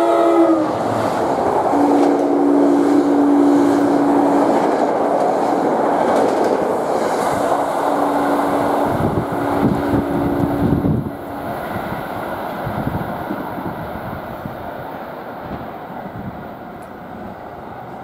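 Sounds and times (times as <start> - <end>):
train wheels rushing on rails: 0.0 - 18.0
heavy rumble with wheel clacks: 3.7 - 7.6.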